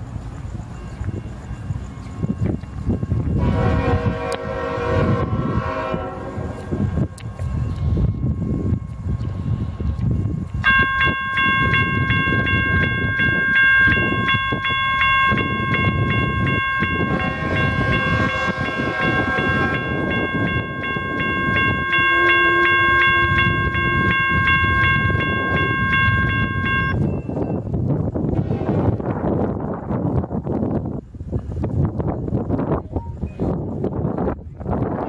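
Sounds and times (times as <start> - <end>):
diesel locomotives rumbling: 0.0 - 35.0
crossing bell ringing: 0.5 - 27.8
locomotive horn blast: 3.4 - 6.8, 17.0 - 20.2, 21.9 - 24.2.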